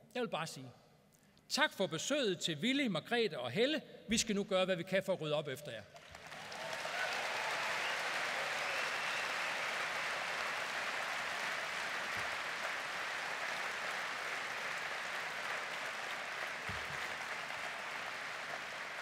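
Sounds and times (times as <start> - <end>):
audience applauding: 6.0 - 19.0.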